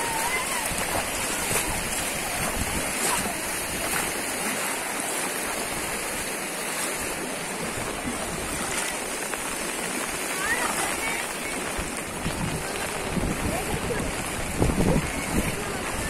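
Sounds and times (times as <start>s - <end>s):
wind noise on microphone: 0.0s - 4.2s, 7.6s - 16.0s
floodwater rushing: 0.0s - 16.0s.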